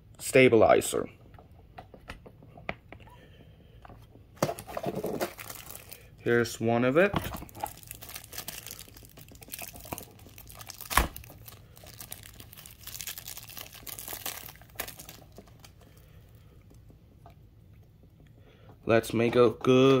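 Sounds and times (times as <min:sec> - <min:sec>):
plastic bag crinkling and tearing: 0:04.4 - 0:06.1, 0:07.4 - 0:16.0.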